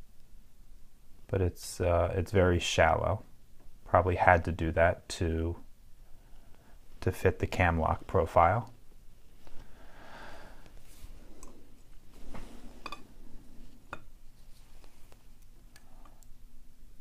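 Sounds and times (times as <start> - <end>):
soft handling rustle: 6.4 - 9.8, 10.6 - 16.1.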